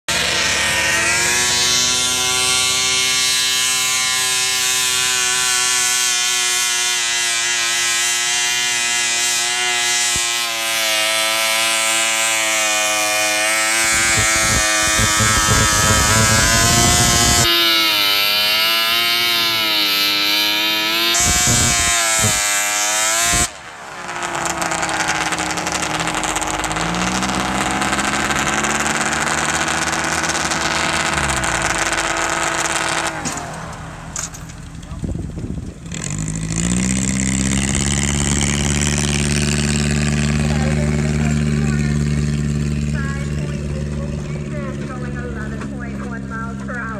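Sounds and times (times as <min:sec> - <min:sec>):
tractor engine at high revs: 0:00.0 - 0:46.9.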